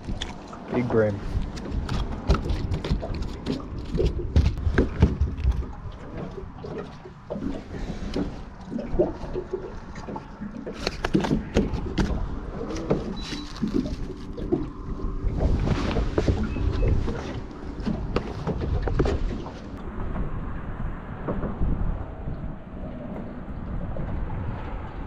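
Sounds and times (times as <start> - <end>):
knocks and taps on boat deck: 1.4 - 7.5, 9.0 - 13.2, 15.9 - 20.3
steady low rumble: 11.3 - 25.0.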